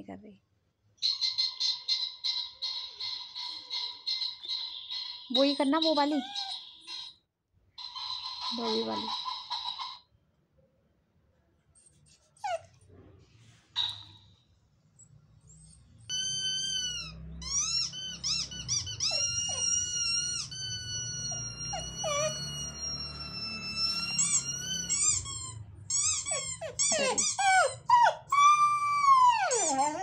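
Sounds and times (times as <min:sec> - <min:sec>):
dog whining: 0:05.4 - 0:06.7, 0:11.8 - 0:12.9, 0:15.4 - 0:30.0.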